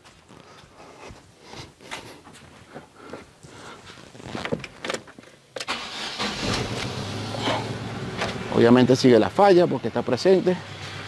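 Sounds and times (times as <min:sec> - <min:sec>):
car engine starting and idling: 0:05.6 - 0:11.0
engine misfiring: 0:05.7 - 0:09.4.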